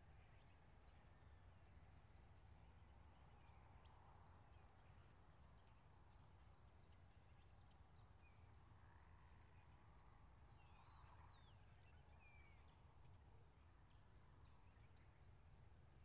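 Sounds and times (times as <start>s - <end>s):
small birds chirping: 0.0s - 9.8s.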